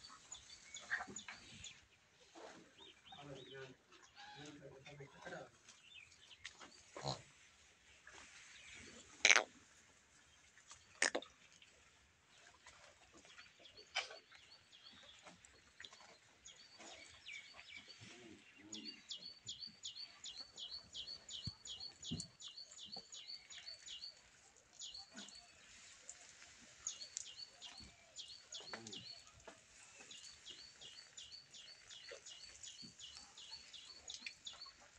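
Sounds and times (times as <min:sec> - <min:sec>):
small bird chirping: 0:18.7 - 0:24.2, 0:26.8 - 0:34.9.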